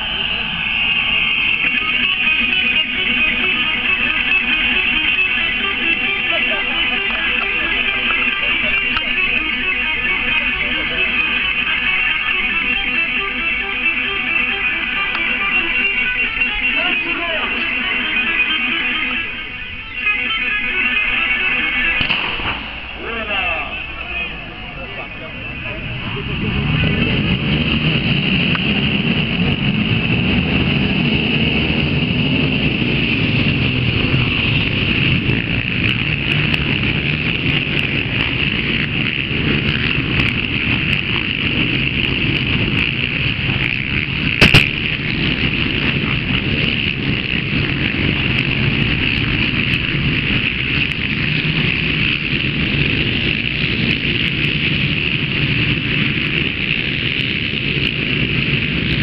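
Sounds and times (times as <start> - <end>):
racing quad engines: 0.0 - 59.0
sharp knock: 44.4 - 44.8.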